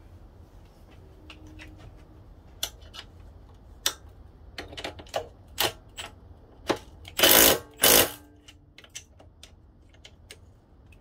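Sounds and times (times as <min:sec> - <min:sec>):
wrench clicking on bolt: 0:04.6 - 0:10.2.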